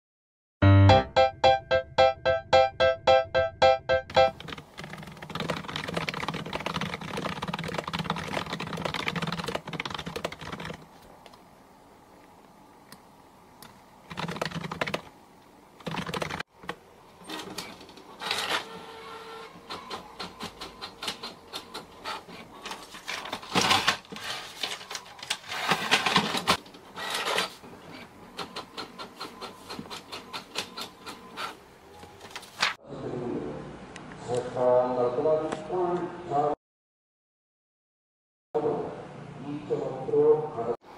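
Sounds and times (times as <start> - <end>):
rapid keyboard typing: 4.1 - 10.9, 14.1 - 15.1, 15.8 - 16.8.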